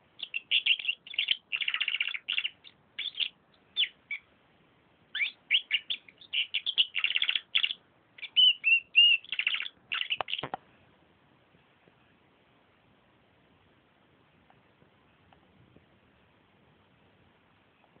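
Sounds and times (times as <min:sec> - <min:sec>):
canary singing: 0:00.2 - 0:04.3, 0:05.1 - 0:10.6.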